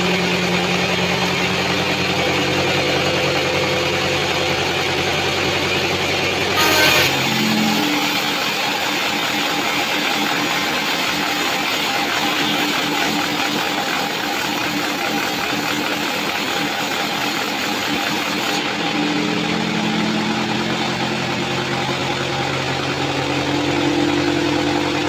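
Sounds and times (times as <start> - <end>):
saw blade cutting wood: 6.6 - 18.6.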